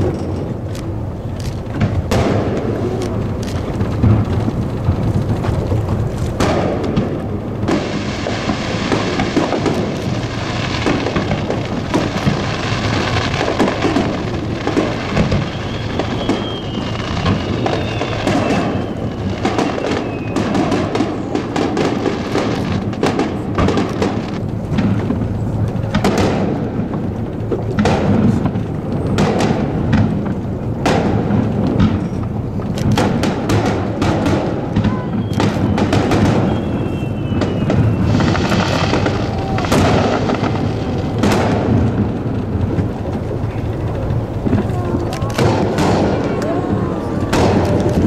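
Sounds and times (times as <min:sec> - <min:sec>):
firework crackle: 0:00.0 - 0:48.0
firework shells bursting: 0:00.0 - 0:48.0
falling firework whistle: 0:06.4 - 0:24.4, 0:32.9 - 0:42.1.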